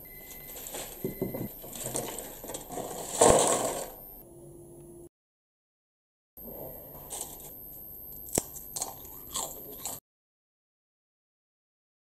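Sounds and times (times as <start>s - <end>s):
pita chips rustling and clattering: 0.3s - 4.0s.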